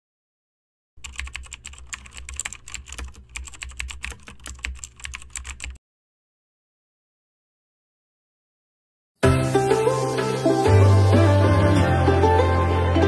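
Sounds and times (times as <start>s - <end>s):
keyboard key clicks: 1.0s - 5.8s.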